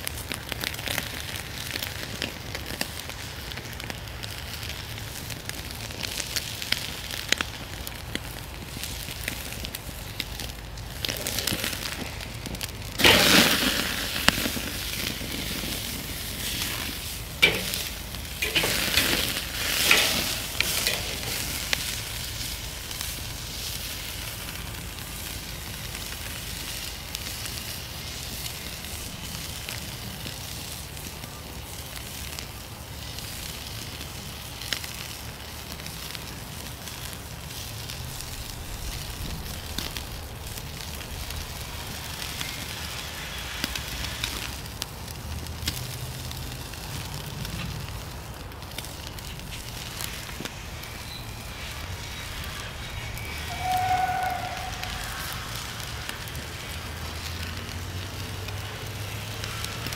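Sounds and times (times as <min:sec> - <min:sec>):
steak sizzling on a grill: 0:00.0 - 0:59.9.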